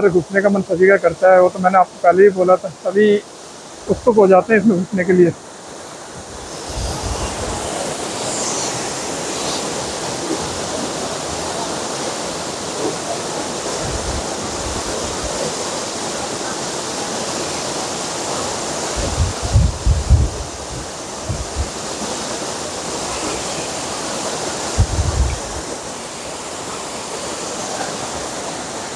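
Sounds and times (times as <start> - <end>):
waterfall rushing: 0.0 - 28.9
wind noise on microphone: 6.2 - 10.6, 13.8 - 15.4, 18.9 - 21.8, 24.7 - 25.7.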